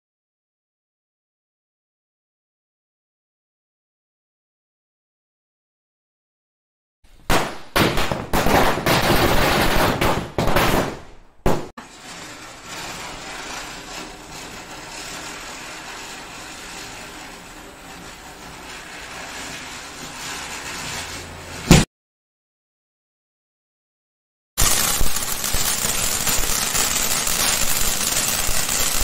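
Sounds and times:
firecrackers banging: 7.2s - 21.9s, 24.6s - 29.0s
ground firework hissing and crackling: 11.8s - 21.7s, 24.6s - 29.0s.

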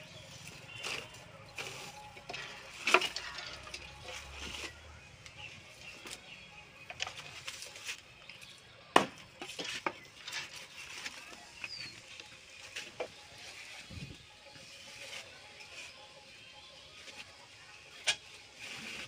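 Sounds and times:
bamboo strips knocking and clicking: 0.8s - 4.6s, 6.0s - 8.4s, 9.0s - 13.1s.

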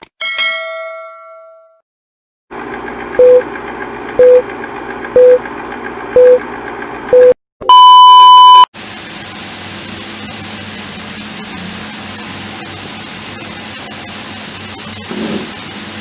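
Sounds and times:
longer higher beep: 7.2s - 8.7s
short beeps: 7.2s - 8.7s.

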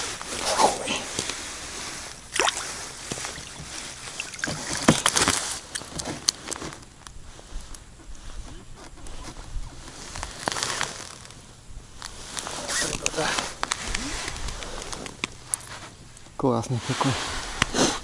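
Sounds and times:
fish slapping on ice: 2.4s - 5.9s.

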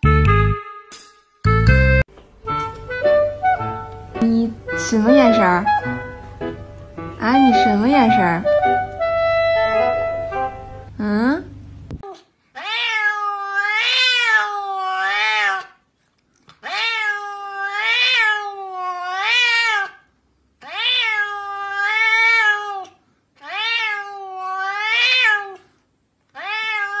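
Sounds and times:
cat meowing: 12.0s - 15.8s, 16.6s - 25.7s, 26.3s - 27.0s.

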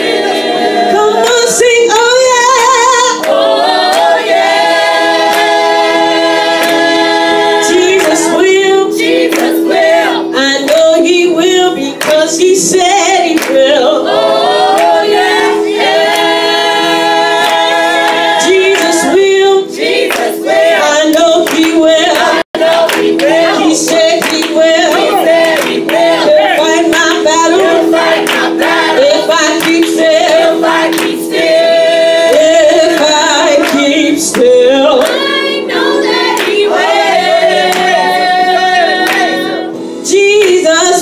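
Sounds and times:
backing singers: 0.0s - 41.0s
woman singing gospel: 0.0s - 41.0s
hand-clapping: 3.2s - 4.4s, 5.3s - 5.6s, 6.6s - 7.0s, 7.9s - 8.3s, 9.2s - 9.9s, 10.7s - 11.0s, 12.0s - 12.3s, 13.3s - 13.6s, 14.8s - 16.4s, 17.4s - 19.0s, 19.8s - 27.2s, 28.0s - 28.8s, 29.6s - 31.6s, 33.0s - 35.6s, 36.4s - 37.0s, 37.7s - 38.1s, 39.0s - 39.4s.

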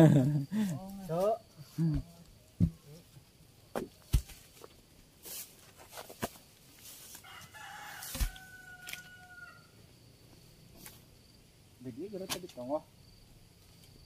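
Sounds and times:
sharp knocks and thumps: 1.8s - 3.0s, 3.7s - 4.7s
rooster crowing: 7.2s - 9.8s.

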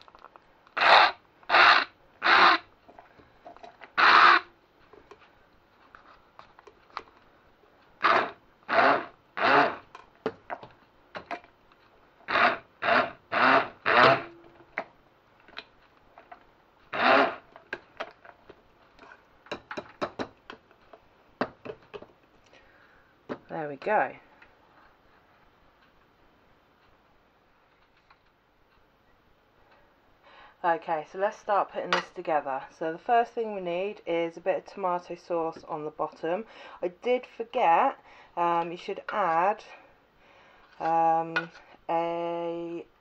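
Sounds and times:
stick blender pulsing: 0.8s - 2.7s, 3.9s - 4.5s, 8.0s - 9.9s, 12.2s - 14.5s, 16.9s - 17.6s.

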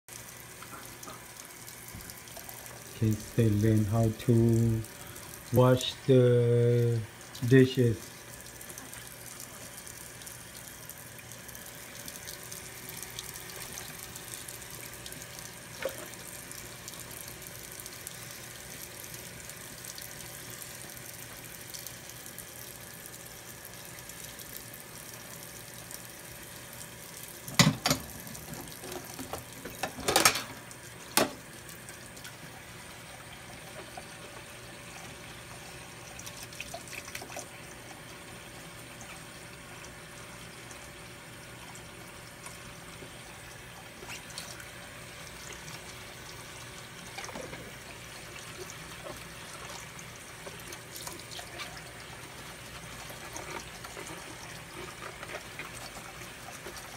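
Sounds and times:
tap running into sink: 27.4s - 31.5s
dishes clattering: 28.9s - 30.6s.

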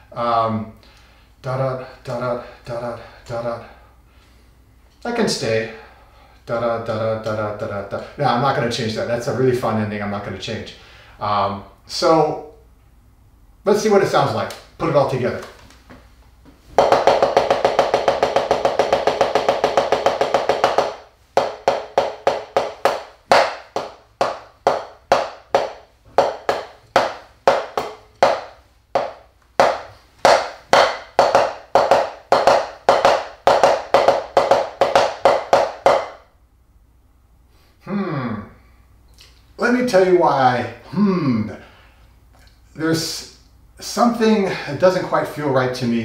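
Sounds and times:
drumsticks striking practice pad: 16.8s - 36.3s.

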